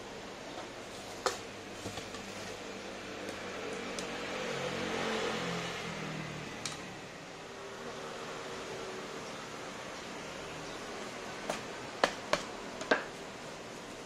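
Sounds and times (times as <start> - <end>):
electric fan hum: 0.0 - 14.0
motor vehicle passing: 3.1 - 9.2.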